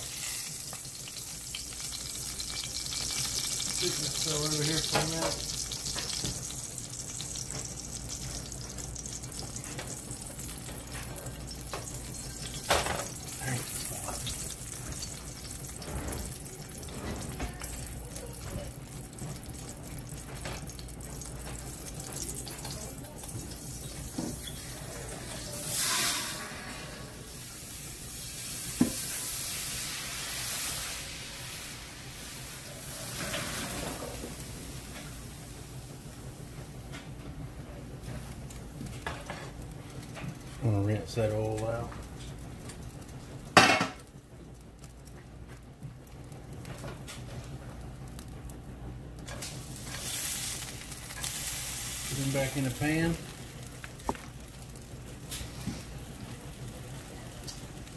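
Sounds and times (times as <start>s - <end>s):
hot oil hissing in a skillet: 0.0s - 36.3s, 49.2s - 57.9s.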